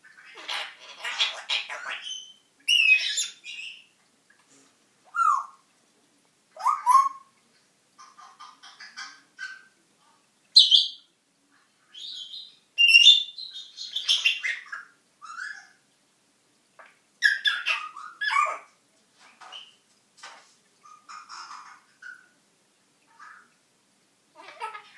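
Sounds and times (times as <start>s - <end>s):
parrot chattering and calling: 0.1s - 3.9s, 5.1s - 5.7s, 6.6s - 7.4s, 8.0s - 9.8s, 11.9s - 15.8s, 17.2s - 18.8s, 20.8s - 22.4s, 24.3s - 24.9s.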